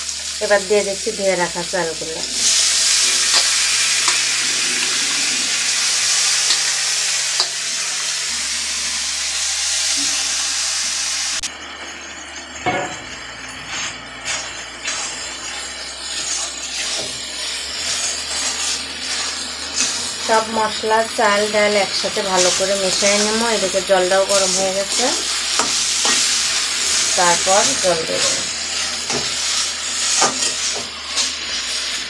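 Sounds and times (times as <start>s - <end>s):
rice sizzling in oil: 0.0s - 32.0s
metal ladle scraping pan: 25.5s - 31.6s.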